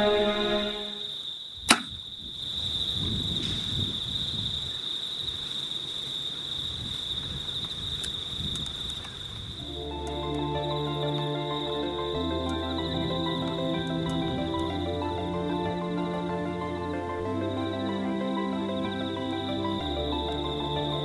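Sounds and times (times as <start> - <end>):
bow shot snap: 1.7 - 2.0.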